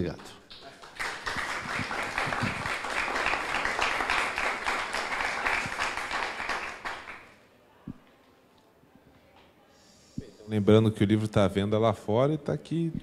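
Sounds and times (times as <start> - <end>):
audience clapping: 0.2 - 7.4.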